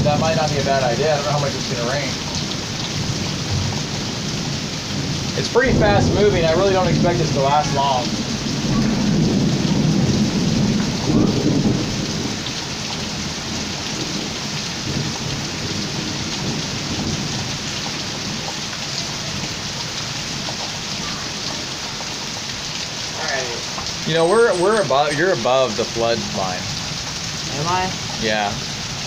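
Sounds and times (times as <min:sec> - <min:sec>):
low roll of thunder: 0:00.0 - 0:18.5
heavy rain pouring: 0:00.0 - 0:29.0.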